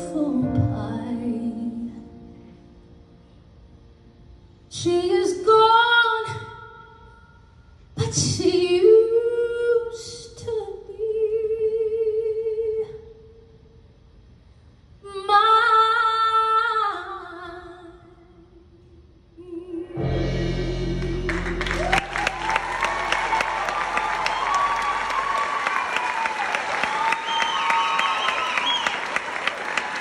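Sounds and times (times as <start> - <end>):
woman singing into a microphone: 4.7 - 7.1, 8.0 - 13.2, 15.1 - 18.5
audience cheering and applauding: 21.3 - 30.0.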